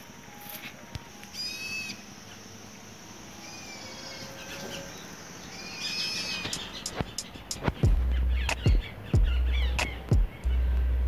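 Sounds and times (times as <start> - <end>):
animal high-pitched call: 0.4 - 2.1, 3.2 - 6.7.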